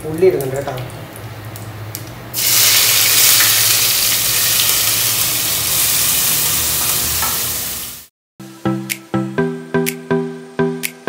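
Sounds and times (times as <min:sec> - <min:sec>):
onions sizzling in hot oil: 0:02.4 - 0:08.1.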